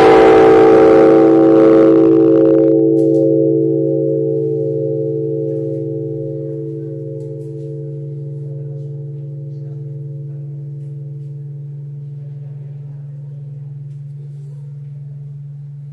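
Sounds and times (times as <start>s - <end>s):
church bell ringing: 0.0s - 12.4s.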